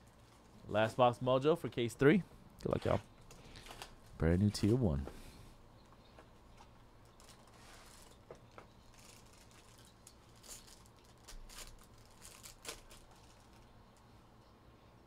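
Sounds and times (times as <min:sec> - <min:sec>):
plastic wrapper crinkling: 0:07.0 - 0:13.8.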